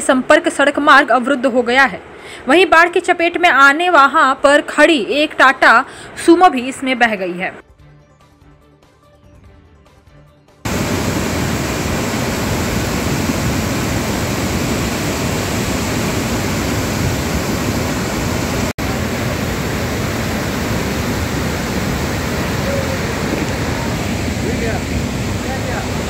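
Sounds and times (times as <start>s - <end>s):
torrent rushing down gully: 10.7s - 26.0s.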